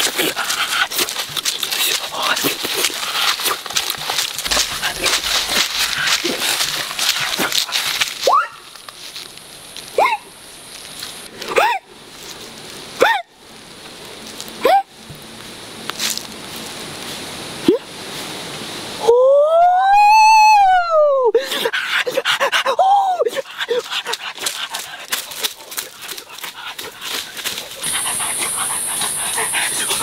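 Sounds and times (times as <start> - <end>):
animal whining and yelping: 27.8 - 30.0.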